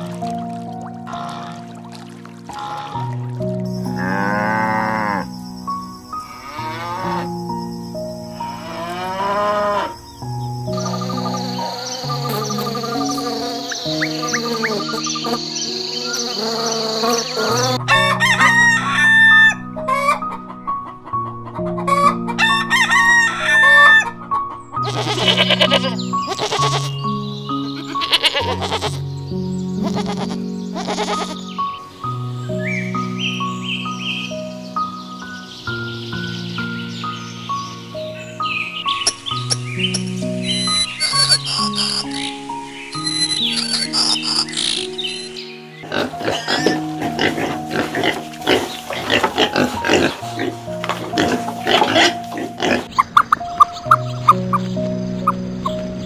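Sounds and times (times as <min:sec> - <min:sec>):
background music: 0:00.0 - 0:56.0
cows mooing: 0:01.1 - 0:01.7, 0:02.5 - 0:03.2, 0:03.9 - 0:05.3, 0:06.2 - 0:07.3, 0:08.4 - 0:10.0, 0:10.9 - 0:18.5, 0:45.8 - 0:53.0
goats bleating: 0:24.8 - 0:27.0, 0:27.8 - 0:29.0.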